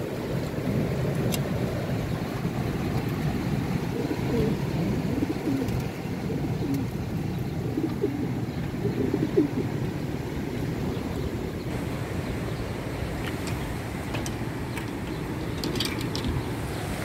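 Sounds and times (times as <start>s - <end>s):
wind rumble on microphone: 0.0s - 17.0s
pigeons cooing: 2.8s - 11.8s.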